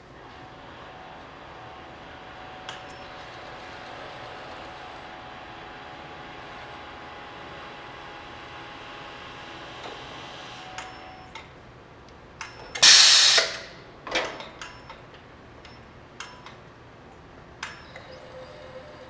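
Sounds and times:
air hiss from pneumatic cylinder: 12.8s - 13.8s.

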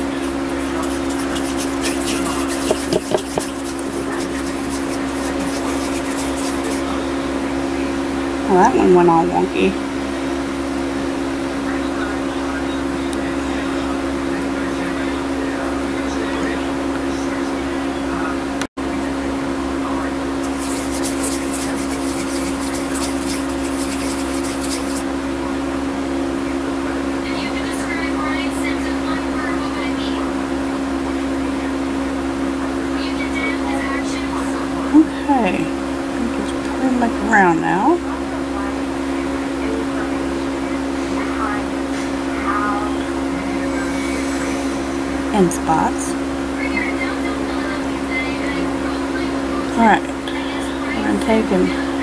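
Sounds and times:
fingers rubbing clay: 0.0s - 7.0s, 20.4s - 25.1s
steady machine hum: 0.0s - 52.0s.

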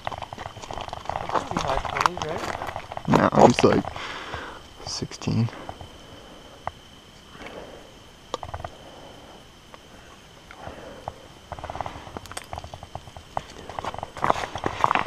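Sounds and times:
footsteps on cobbles: 0.0s - 4.0s, 11.5s - 15.0s
sharp clicks and rattles: 0.0s - 5.0s, 8.3s - 8.8s, 10.5s - 15.0s.

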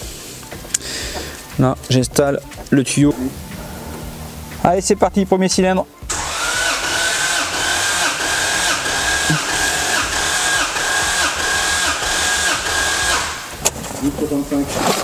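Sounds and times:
starter motor cranking engine: 6.1s - 14.1s.

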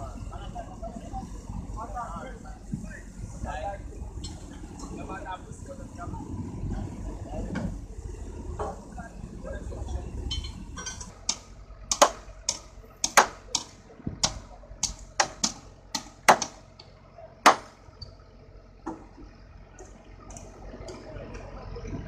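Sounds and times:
hammering on wood: 11.3s - 16.6s, 17.4s - 17.7s.

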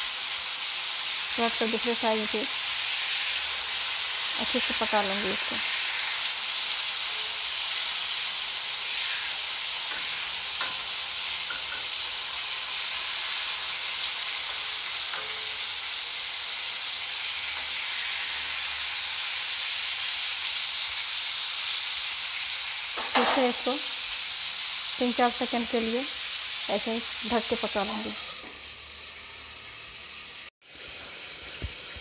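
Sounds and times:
tomatoes sizzling in oil: 0.0s - 32.0s.

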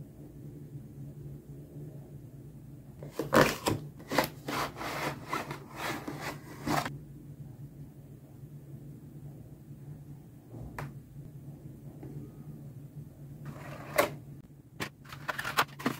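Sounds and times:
cardboard box sleeve scraping: 3.1s - 6.9s.

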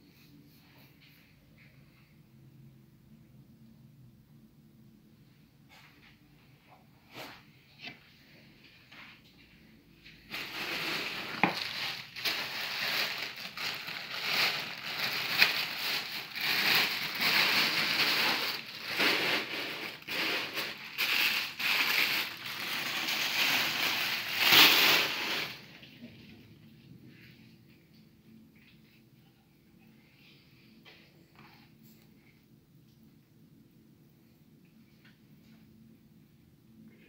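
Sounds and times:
plastic packaging crinkling: 10.3s - 25.9s.

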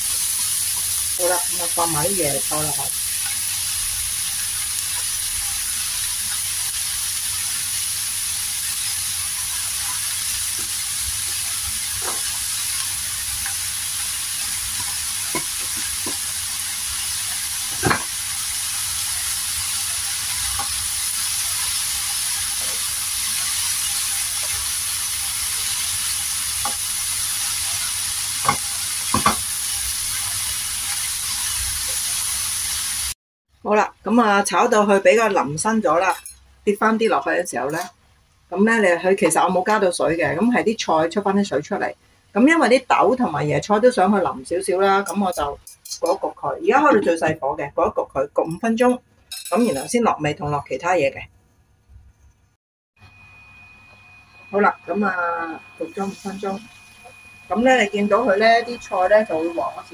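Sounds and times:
vegetables sizzling in oil: 0.0s - 33.2s, 53.0s - 59.9s.

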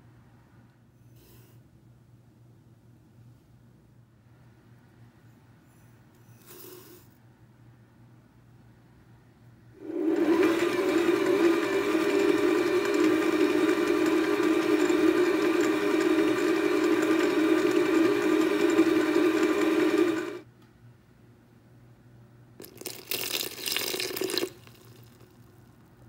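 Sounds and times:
stand mixer motor hum: 9.8s - 20.4s.

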